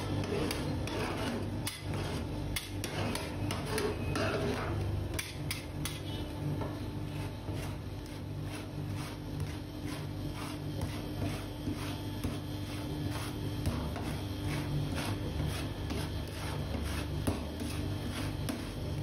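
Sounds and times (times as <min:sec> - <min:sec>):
metal scraper rasping on steel: 0:00.0 - 0:06.1
steady low hum: 0:00.0 - 0:19.0.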